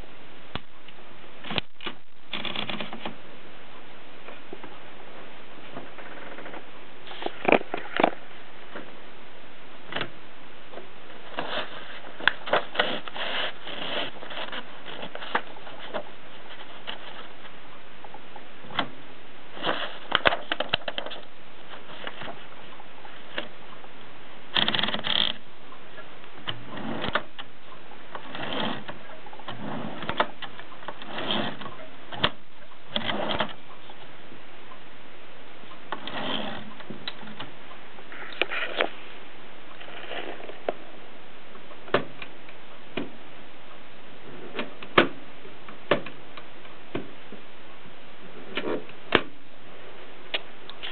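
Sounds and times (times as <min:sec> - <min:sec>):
typewriter mechanism rattle: 0:01.5 - 0:03.1, 0:24.5 - 0:25.4.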